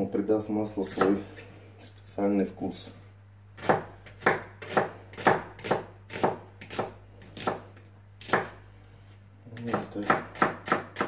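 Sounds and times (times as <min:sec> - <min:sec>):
knife slicing onion on board: 0:00.9 - 0:01.2, 0:03.6 - 0:08.6, 0:09.6 - 0:11.0.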